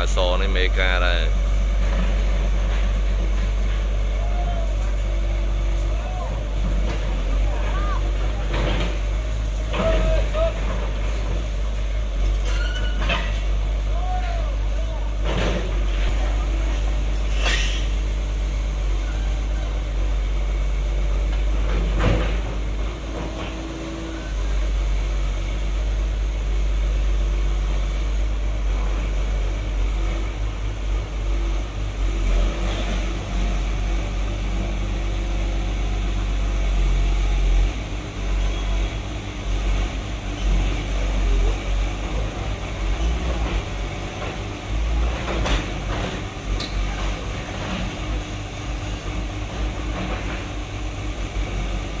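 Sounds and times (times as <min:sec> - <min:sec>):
excavator diesel engine rumbling: 0:00.0 - 0:52.0
sharp metallic clanks: 0:17.3 - 0:18.0.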